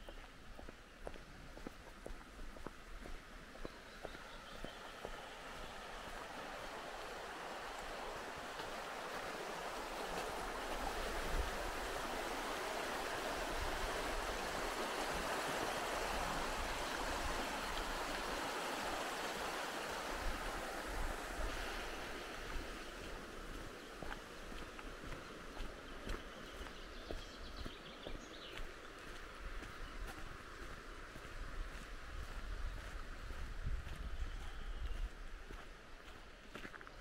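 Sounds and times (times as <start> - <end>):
river rushing over rapids: 4.8 - 26.0.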